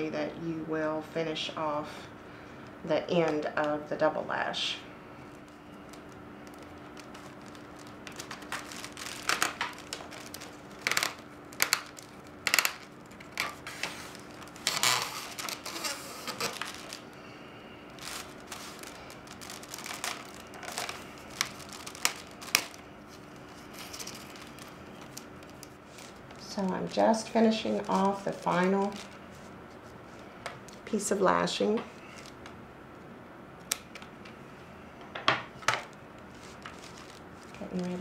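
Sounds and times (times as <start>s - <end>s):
faint steady hum: 0.0s - 38.0s
reed rustling and crackling: 5.1s - 30.9s, 35.6s - 38.0s.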